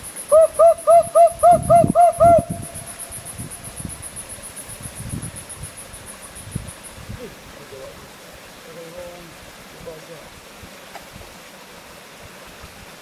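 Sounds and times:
bird calling rapid notes: 0.0s - 3.9s
high pulsing insect trill: 0.0s - 9.4s.

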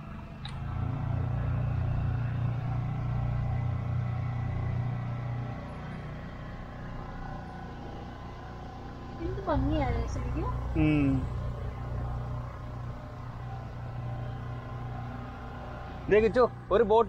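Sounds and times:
boat engine droning: 0.0s - 17.0s.

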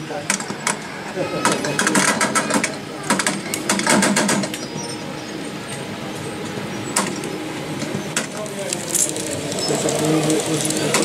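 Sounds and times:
sharp clicks and clatter: 1.4s - 4.6s, 7.0s - 11.0s
model train motor whirring: 6.9s - 11.0s.

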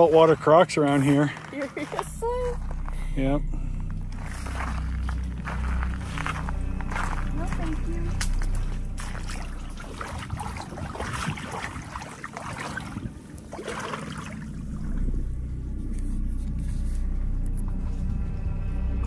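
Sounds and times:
steady low rumble: 0.0s - 19.0s
small waves lapping and splashing: 6.9s - 15.3s.

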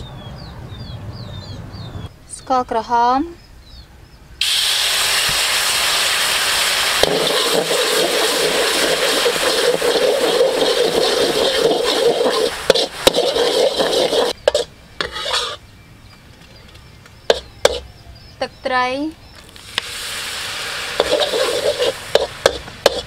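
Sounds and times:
sauce sizzling in wok: 4.4s - 15.6s, 19.6s - 23.0s
metal spatula scraping wok: 7.0s - 15.6s, 17.3s - 17.8s, 20.1s - 23.0s.

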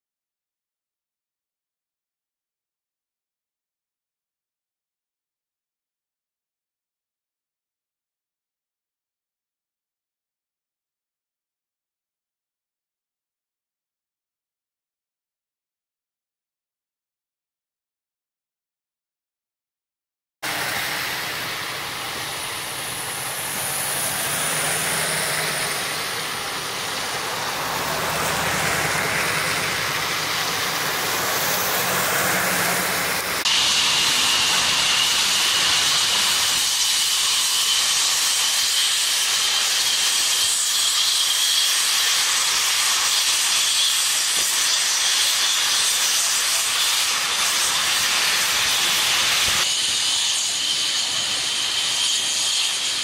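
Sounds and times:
thin high whine: 20.4s - 53.0s
vehicle engine running: 20.5s - 33.4s
fire rushing hiss: 20.5s - 53.0s.

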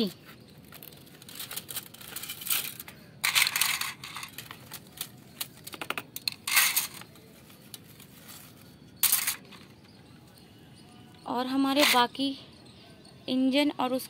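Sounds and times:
plastic toy track clattering: 1.2s - 7.1s.

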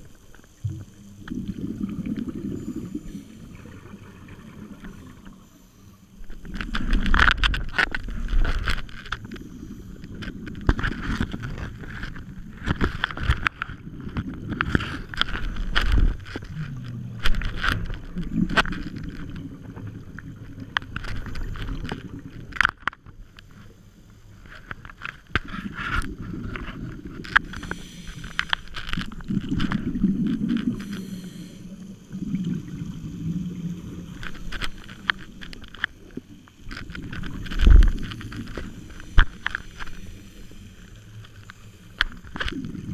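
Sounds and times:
exhaled bubbles: 0.0s - 22.7s, 25.4s - 42.9s
underwater regulator breathing: 25.4s - 31.9s.

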